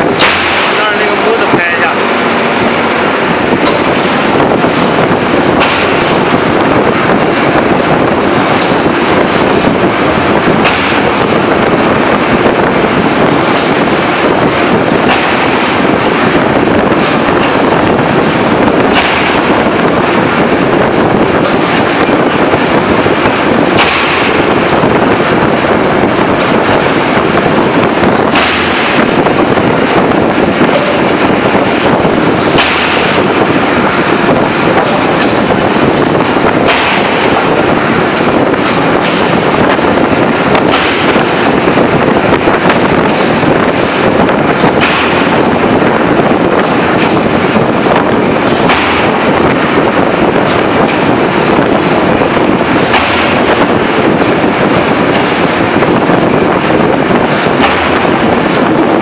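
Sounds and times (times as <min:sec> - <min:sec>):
sharp cracks: 0:00.0 - 0:02.0, 0:18.9 - 0:19.6, 0:23.5 - 0:24.5, 0:28.1 - 0:29.1, 0:32.3 - 0:33.3, 0:36.6 - 0:37.4, 0:40.5 - 0:41.8, 0:44.6 - 0:45.4, 0:48.4 - 0:49.7, 0:52.7 - 0:53.7
industrial press din: 0:00.0 - 0:59.0.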